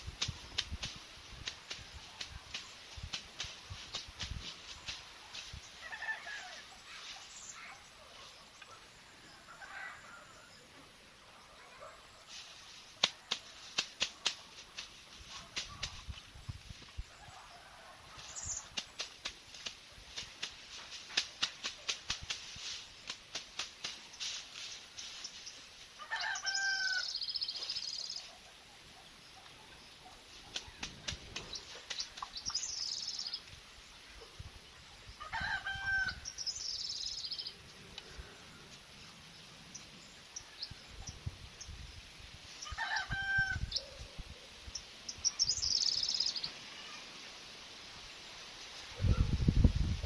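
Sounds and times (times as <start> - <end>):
rooster crowing: 26.0 - 27.2, 35.2 - 36.2, 42.7 - 43.7.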